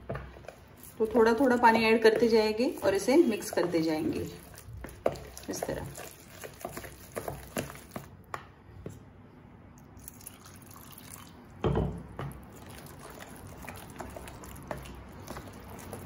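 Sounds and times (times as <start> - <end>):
batter squishing by hand: 0.0 - 9.1, 12.1 - 16.0
water splashing into bowl: 10.0 - 11.4.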